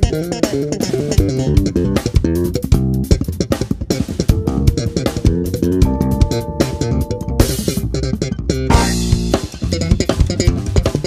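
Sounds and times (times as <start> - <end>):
drum kit: 0.0 - 11.0
electric bass melodic line: 0.0 - 11.0.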